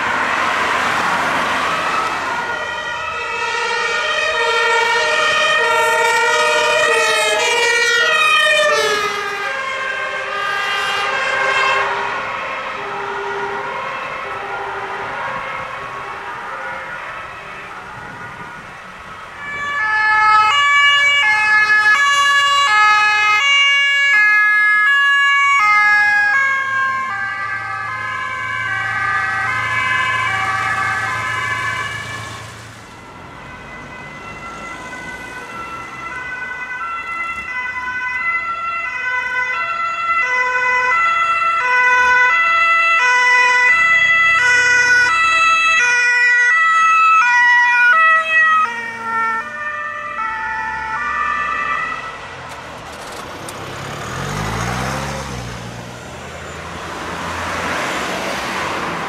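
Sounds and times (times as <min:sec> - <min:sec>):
two-tone sirens: 0:00.0 - 0:59.0
engine rumble: 0:49.6 - 0:59.0.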